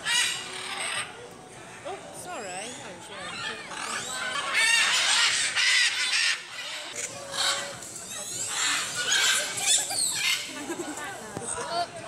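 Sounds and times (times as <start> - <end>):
macaws squawking: 3.3 - 10.6.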